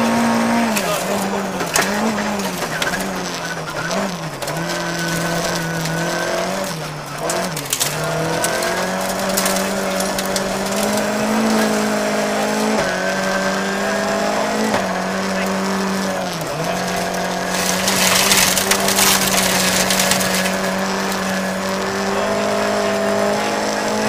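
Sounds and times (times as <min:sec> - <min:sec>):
rally car engine revving: 0:00.0 - 0:24.0
gravel hitting car underside: 0:00.4 - 0:12.0, 0:14.6 - 0:21.9.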